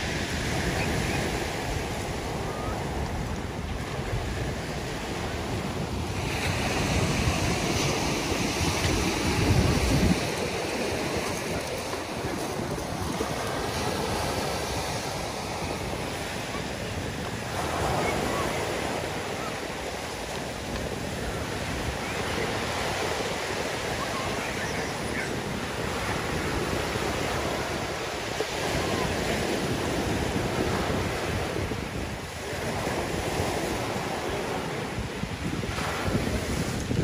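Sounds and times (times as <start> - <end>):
waves washing on pebble beach: 0.0 - 37.0
wind rumbling on microphone: 0.0 - 37.0.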